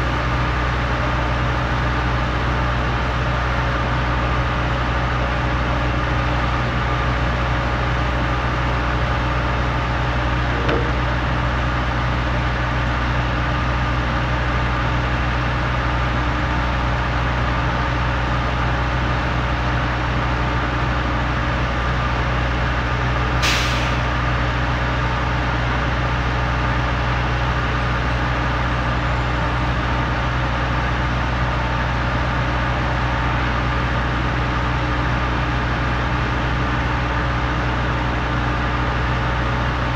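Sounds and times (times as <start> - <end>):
heavy diesel engines running: 0.0 - 39.9
short hiss of air: 23.4 - 24.0.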